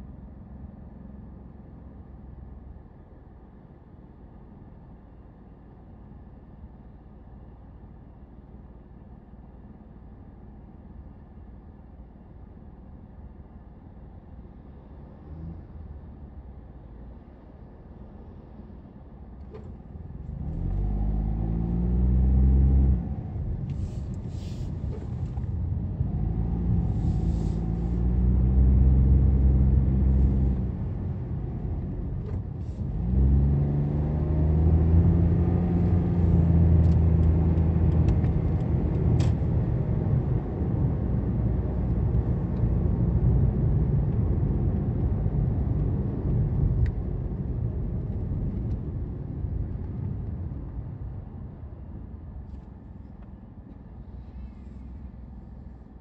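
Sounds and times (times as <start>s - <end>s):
car engine accelerating: 19.6s - 50.8s.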